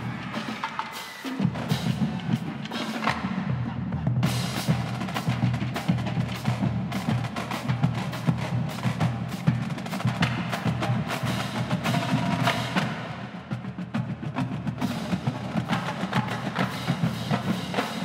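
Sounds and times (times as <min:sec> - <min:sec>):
snare and tenor drum strokes: 0:00.0 - 0:18.0.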